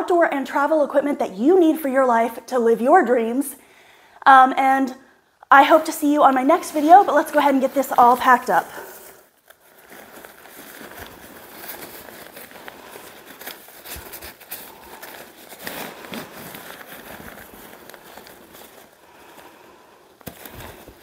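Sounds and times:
tent fabric rustling and crinkling: 5.6s - 21.0s.

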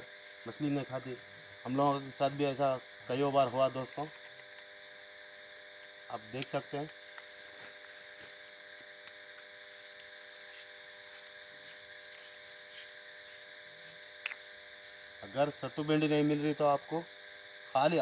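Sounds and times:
faint background hum: 0.0s - 18.0s
small click: 14.2s - 14.5s.

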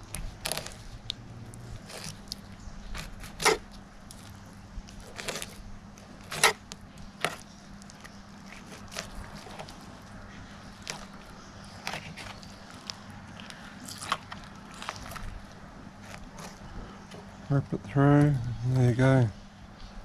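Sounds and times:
knife scraping fish bones: 1.6s - 9.9s.

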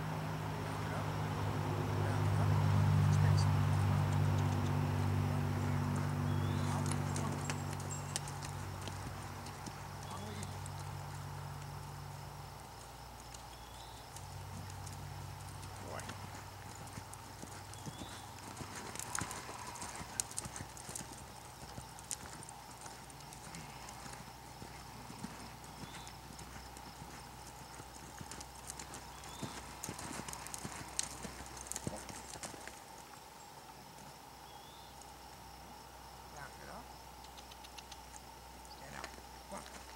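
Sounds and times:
horse hoofbeats on sand: 5.9s - 11.9s, 13.2s - 32.7s.

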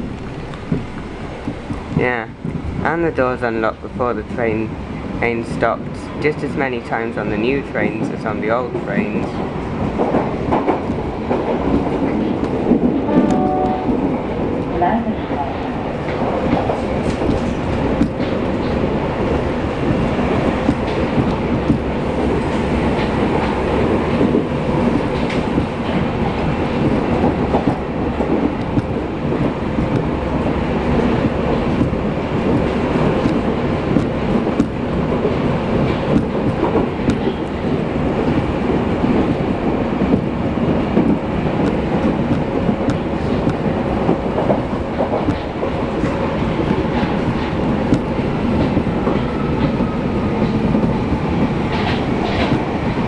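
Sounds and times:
train wheel and rail noise: 0.0s - 53.0s
rhythmic clatter over track: 16.0s - 53.0s.

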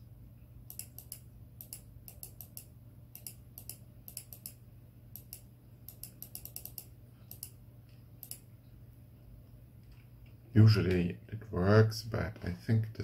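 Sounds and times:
computer mouse clicking: 0.6s - 7.6s, 8.2s - 8.5s.

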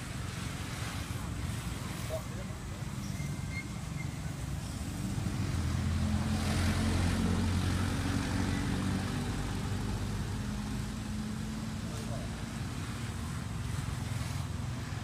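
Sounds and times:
vehicle engine passing by: 3.2s - 15.0s.

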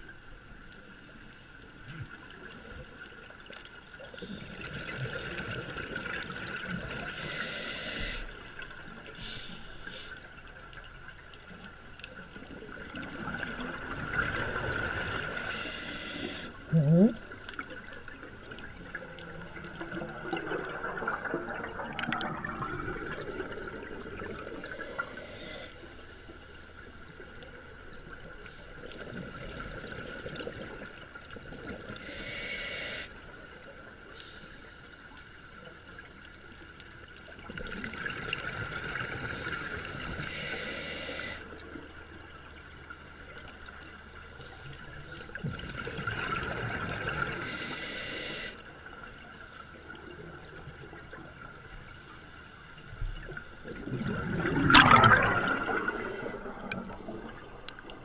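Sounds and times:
regulator hiss: 7.1s - 8.3s, 15.3s - 16.6s, 24.6s - 25.8s, 32.0s - 33.2s, 40.2s - 41.4s, 47.4s - 48.6s
exhaled bubbles underwater: 12.4s - 15.6s, 16.3s - 25.3s, 28.8s - 32.2s, 37.2s - 40.6s, 45.3s - 47.8s, 52.8s - 58.0s.

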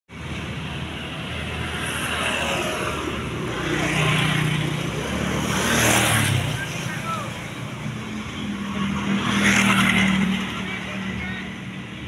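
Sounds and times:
vehicles passing on street: 0.1s - 12.0s.

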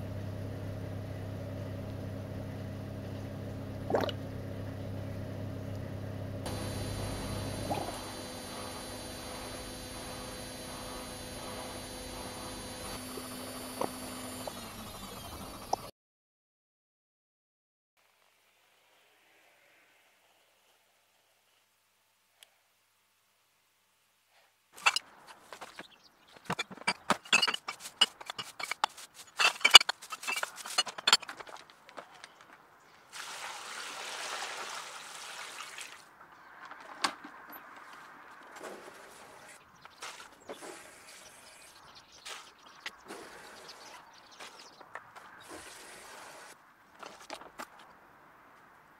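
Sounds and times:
steady low hum: 0.0s - 15.9s
airlock bubbling blip: 3.8s - 4.2s
glass bottles clinking: 24.8s - 25.0s, 26.5s - 31.4s
running water: 33.1s - 36.1s.

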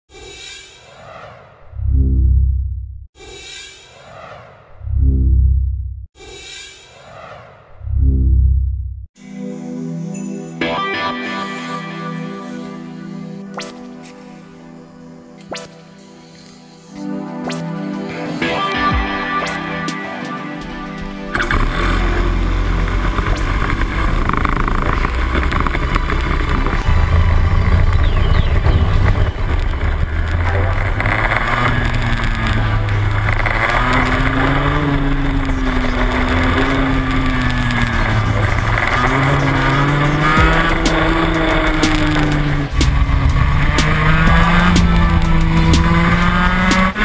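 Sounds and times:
two-stroke kart engine revving: 21.3s - 47.0s.

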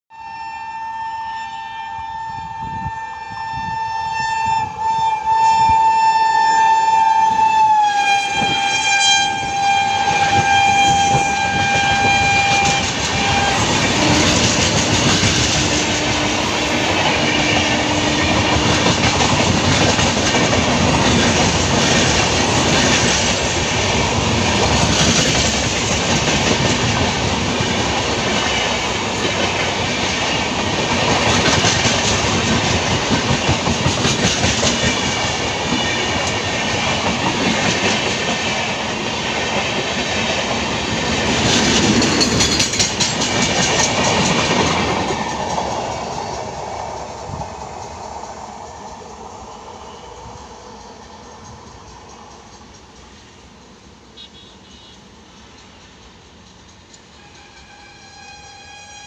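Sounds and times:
train horn blast: 0.1s - 19.2s, 54.2s - 55.1s, 57.1s - 59.0s
train coaches rushing past: 4.6s - 59.0s.

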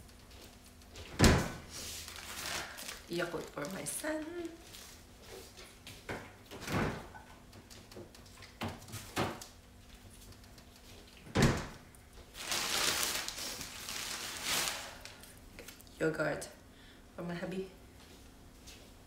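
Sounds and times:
refrigerator door opening: 1.1s - 1.7s, 6.6s - 7.1s, 11.3s - 11.8s
shopping bag rustling: 1.7s - 5.0s, 12.3s - 15.2s.

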